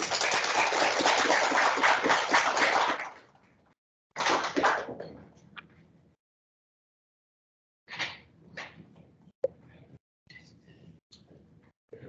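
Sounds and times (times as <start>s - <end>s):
audience applauding: 0.0s - 3.3s.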